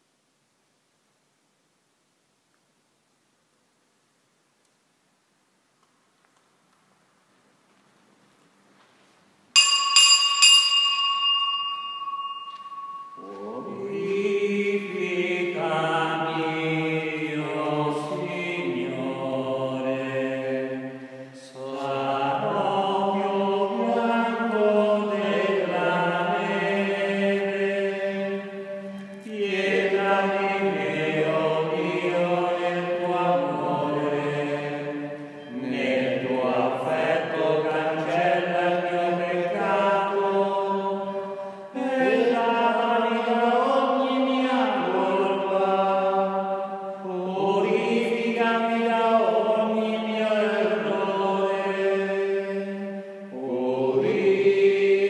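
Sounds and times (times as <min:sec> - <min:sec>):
small bell ringing: 0:09.6 - 0:13.4
person singing a slow hymn: 0:11.7 - 0:55.0.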